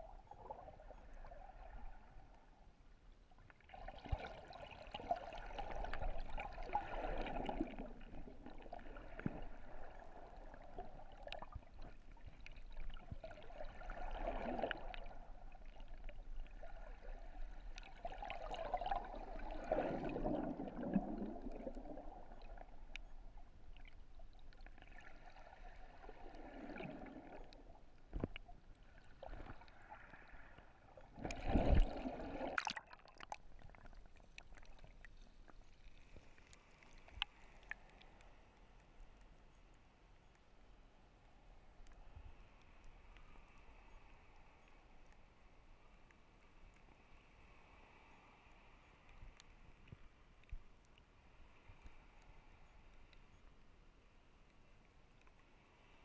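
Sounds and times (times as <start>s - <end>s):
underwater surf surge: 3.7s - 23.9s, 24.7s - 28.4s, 29.0s - 33.2s.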